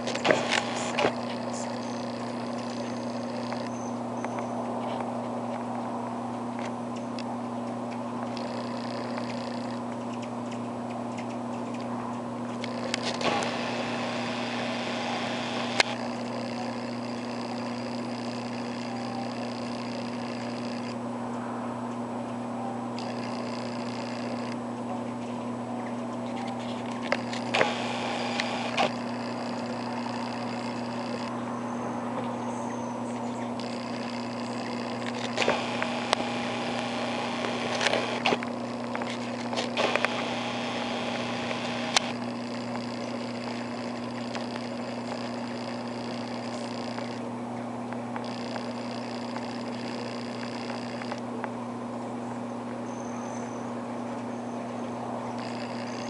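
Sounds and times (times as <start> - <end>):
sharp ticks: 0.0 - 3.8, 6.6 - 21.0, 23.0 - 24.6, 26.9 - 31.3, 33.6 - 47.3, 48.2 - 51.2, 55.4 - 56.0
hummingbird wings buzzing: 0.0 - 3.9, 8.2 - 10.2, 12.5 - 21.0, 23.0 - 24.6, 26.6 - 31.5, 33.6 - 47.4, 48.2 - 51.3, 55.3 - 56.0
steady low hum: 0.0 - 56.0.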